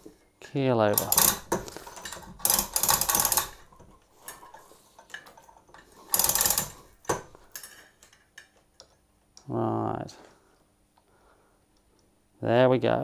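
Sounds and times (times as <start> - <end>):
chain rattling through hoist: 0.9 - 8.2.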